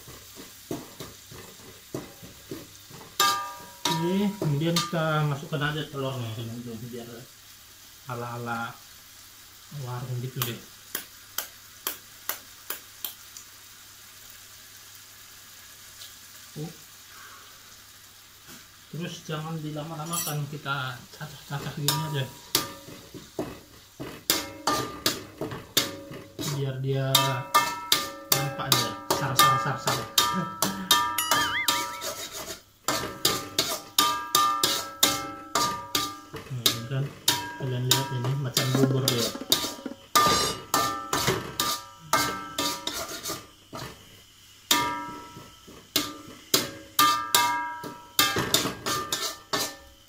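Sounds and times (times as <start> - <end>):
paste sizzling in oil: 0.0 - 50.0
metal spatula striking a wok: 3.2 - 5.1, 21.8 - 23.0, 24.3 - 26.5, 27.1 - 43.0, 44.7 - 49.9.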